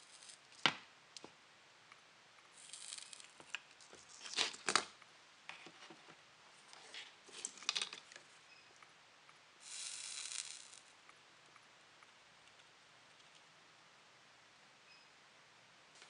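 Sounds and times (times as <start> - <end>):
soldering iron hiss: 9.6 - 10.9.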